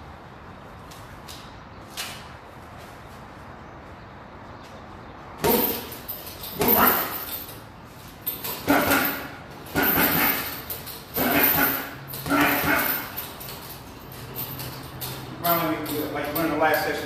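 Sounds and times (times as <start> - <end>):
punches hitting heavy bag: 5.4 - 7.3, 8.5 - 13.2.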